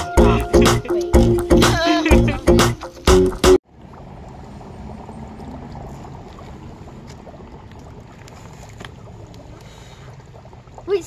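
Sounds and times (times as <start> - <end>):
dry ice bubbling in water: 3.9 - 11.0.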